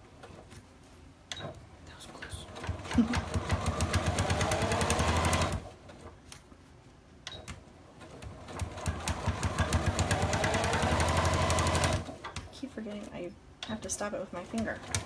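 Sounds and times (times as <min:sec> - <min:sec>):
sewing machine stitching: 0:02.6 - 0:05.7, 0:08.0 - 0:12.2, 0:14.6 - 0:15.0.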